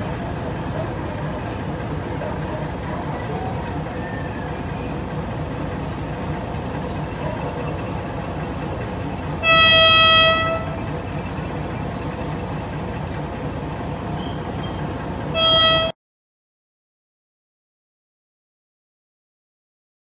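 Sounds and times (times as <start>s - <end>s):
train running rumble: 0.0s - 16.0s
train horn blasts: 9.4s - 10.9s, 15.3s - 16.0s.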